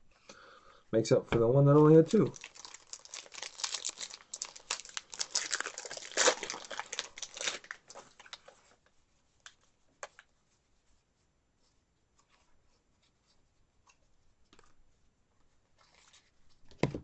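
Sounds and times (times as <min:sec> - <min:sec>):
wrapper being torn and crinkled: 0:02.1 - 0:08.6.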